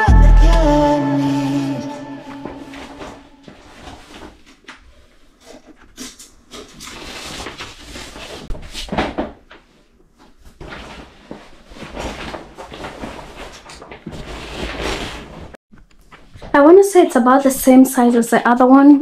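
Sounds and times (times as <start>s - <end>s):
shower curtain fabric rustling: 2.4s - 17.4s.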